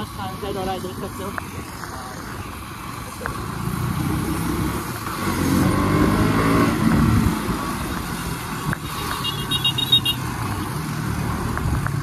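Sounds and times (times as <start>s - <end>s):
wind and road noise: 0.0s - 12.0s
motorcycle engine accelerating: 3.2s - 9.2s.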